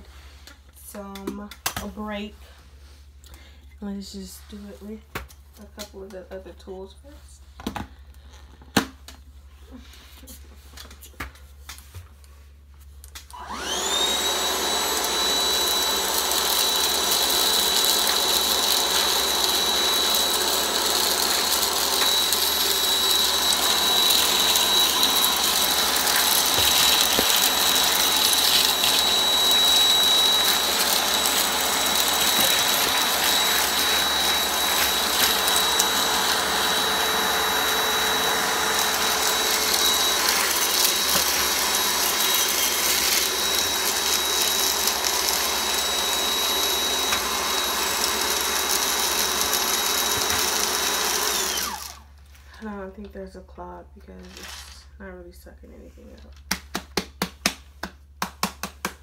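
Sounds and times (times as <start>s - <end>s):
vacuum cleaner motor whine: 13.3s - 52.1s.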